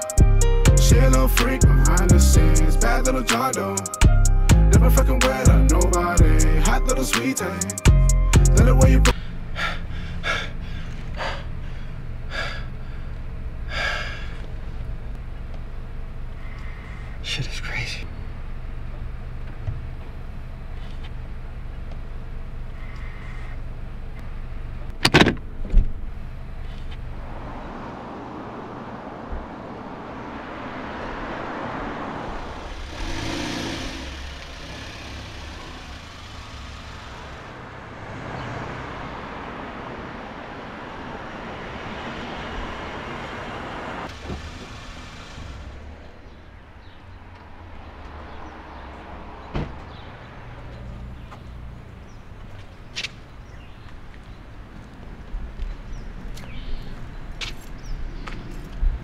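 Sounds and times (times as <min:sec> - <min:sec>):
car tyre and engine noise: 0:09.1 - 0:59.0.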